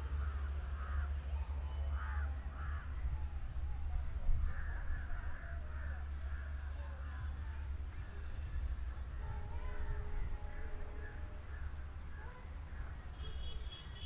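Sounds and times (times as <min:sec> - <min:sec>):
crows cawing: 0:00.2 - 0:01.1, 0:01.9 - 0:02.9, 0:04.4 - 0:06.6.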